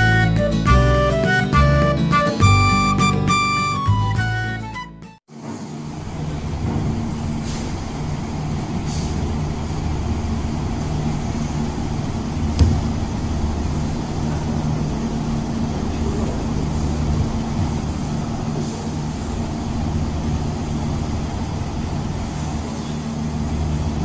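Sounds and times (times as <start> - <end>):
machinery humming: 0.0 - 24.0
sharp knock: 12.6 - 13.0.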